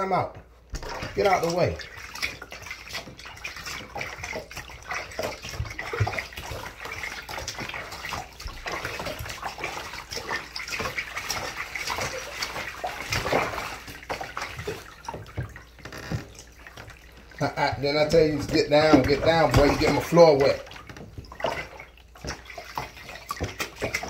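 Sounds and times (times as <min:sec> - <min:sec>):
water splashing in bathtub: 0:00.0 - 0:24.0.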